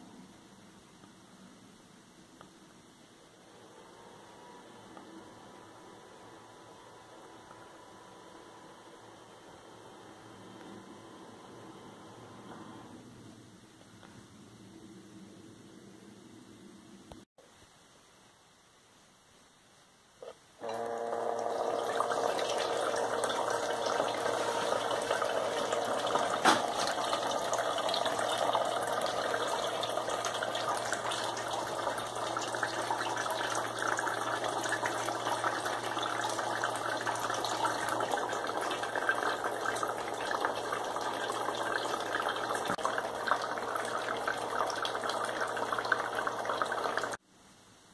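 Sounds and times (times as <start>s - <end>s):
water pump humming: 20.2s - 47.2s.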